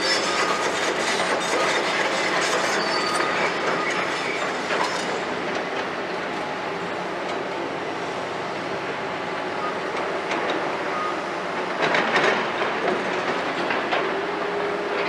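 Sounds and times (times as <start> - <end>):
excavator tracks clanking and scraping: 0.0 - 7.6, 8.9 - 15.0.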